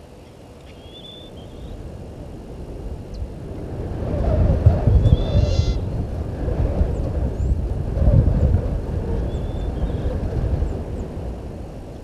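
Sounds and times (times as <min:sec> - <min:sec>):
wind buffeting microphone: 0:00.0 - 0:12.0
bird call: 0:00.6 - 0:01.8, 0:05.1 - 0:05.8.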